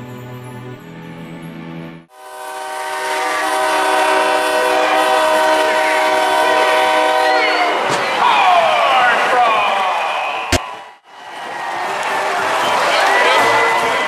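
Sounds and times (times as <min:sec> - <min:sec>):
music: 0:00.0 - 0:02.1
sustained horn-like chord: 0:02.1 - 0:07.4.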